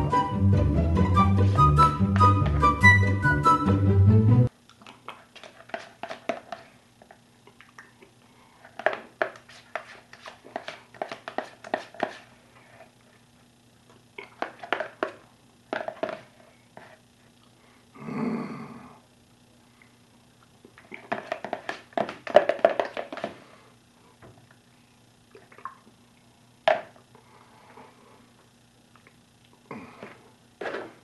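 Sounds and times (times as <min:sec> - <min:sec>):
wet mouth eating sounds: 0:04.7 - 0:06.5, 0:07.4 - 0:08.2, 0:14.2 - 0:14.5, 0:25.3 - 0:26.0
spoon scraping plastic tub: 0:05.1 - 0:06.7, 0:08.6 - 0:12.9, 0:14.2 - 0:15.2, 0:20.9 - 0:23.3
breathy hum through full mouth: 0:16.4 - 0:20.1, 0:27.1 - 0:28.4, 0:29.5 - 0:30.4.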